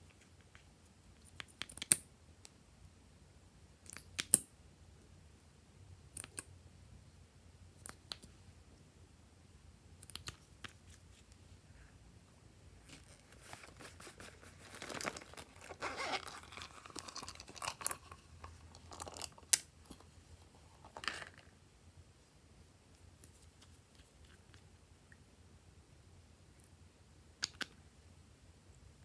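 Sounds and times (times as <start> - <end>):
crinkling and rustling: 12.8 - 21.5.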